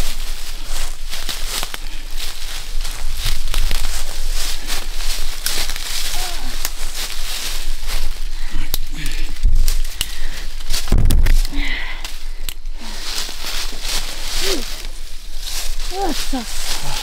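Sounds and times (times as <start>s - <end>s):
footsteps in leaf litter: 0.0s - 8.5s, 12.8s - 17.0s
brush crackling: 0.0s - 17.0s
twigs snapping: 2.8s - 7.7s, 8.4s - 17.0s.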